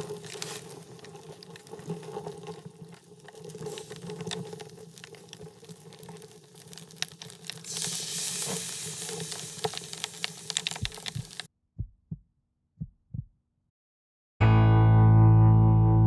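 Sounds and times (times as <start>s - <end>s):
hiss of flame: 0.0s - 11.5s
wood fire crackling: 0.0s - 11.5s.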